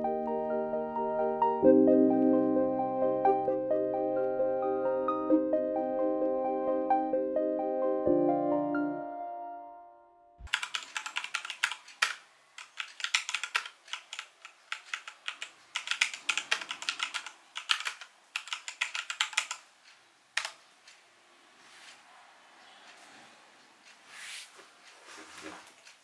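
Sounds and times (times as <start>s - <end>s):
mechanical keyboard typing: 10.5s - 19.6s, 20.4s - 20.6s.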